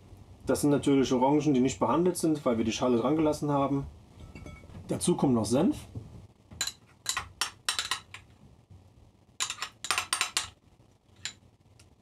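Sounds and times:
metal spoon scraping glass jar: 0:09.4 - 0:10.5.

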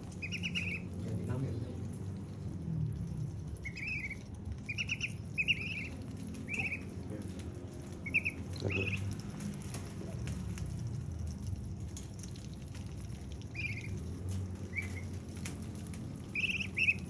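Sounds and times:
ducklings peeping: 0:00.0 - 0:01.0, 0:03.6 - 0:07.1, 0:08.0 - 0:09.1, 0:13.2 - 0:15.3, 0:16.2 - 0:17.0
bills pecking watermelon: 0:00.0 - 0:17.0.

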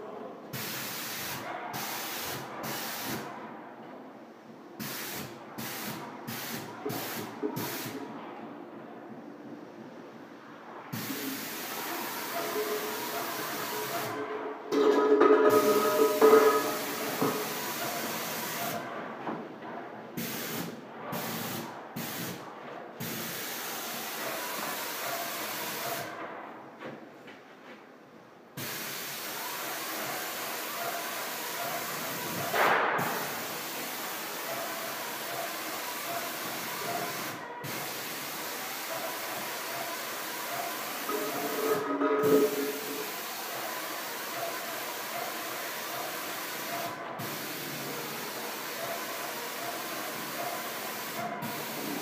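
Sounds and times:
plaster spray gun hissing: 0:00.5 - 0:03.3, 0:04.8 - 0:08.0, 0:10.9 - 0:14.2, 0:15.4 - 0:18.8, 0:20.2 - 0:22.4, 0:23.0 - 0:26.1, 0:28.6 - 0:52.0.

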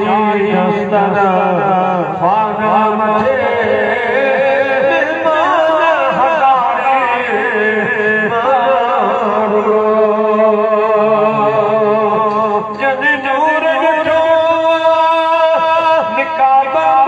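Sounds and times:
man chanting into microphone: 0:00.0 - 0:17.0.

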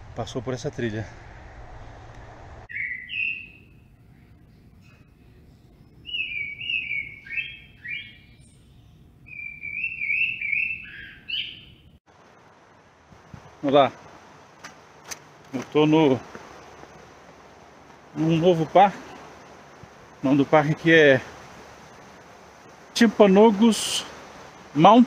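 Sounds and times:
bird chirping whistles: 0:02.7 - 0:03.8, 0:06.0 - 0:11.8.

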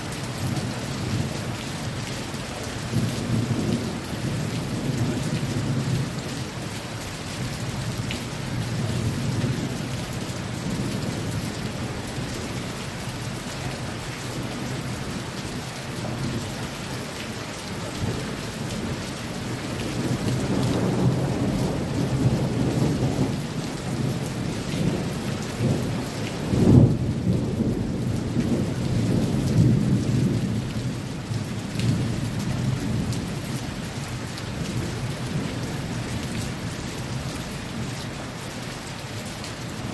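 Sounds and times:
heavy rain: 0:00.0 - 0:39.9
rolling thunder: 0:18.0 - 0:33.4.

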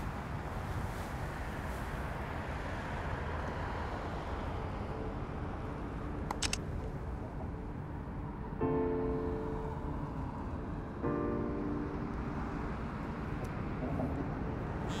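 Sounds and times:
distant traffic hum: 0:00.0 - 0:15.0
wind: 0:00.0 - 0:15.0
sharp clicks: 0:06.3 - 0:06.6
faint sustained music notes: 0:07.1 - 0:15.0.

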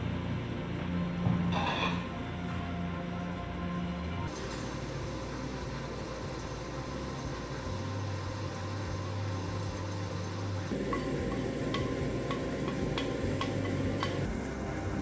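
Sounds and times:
steady mechanical hum: 0:00.0 - 0:15.0
metal cookware clinking: 0:10.7 - 0:14.3.

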